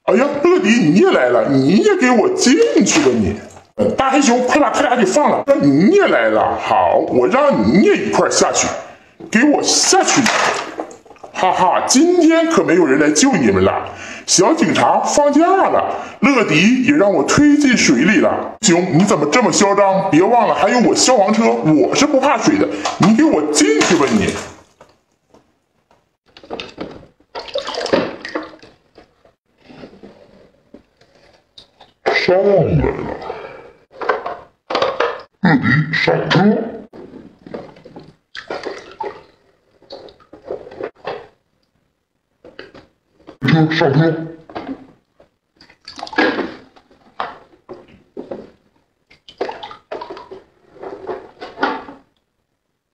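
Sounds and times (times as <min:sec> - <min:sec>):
water splashing in a sink: 0:00.4 - 0:05.2, 0:08.0 - 0:13.4, 0:20.5 - 0:25.1, 0:26.3 - 0:29.8, 0:36.9 - 0:41.7, 0:44.5 - 0:52.2.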